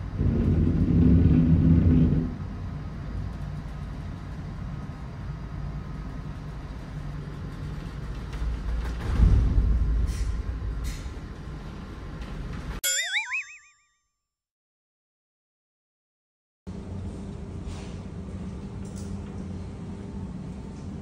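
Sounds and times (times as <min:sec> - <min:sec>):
low ship rumble: 0:00.0 - 0:02.9.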